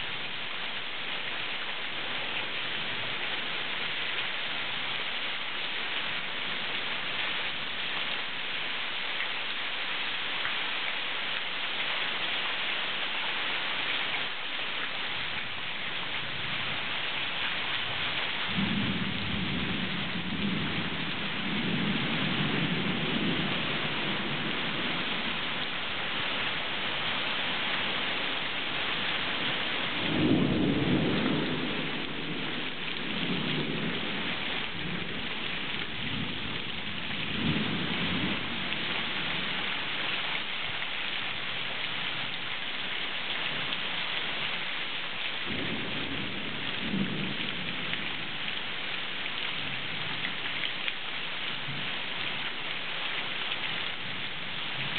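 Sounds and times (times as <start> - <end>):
heavy rain pouring: 0.0 - 54.9
thunder rolling: 18.5 - 25.0, 30.1 - 34.1.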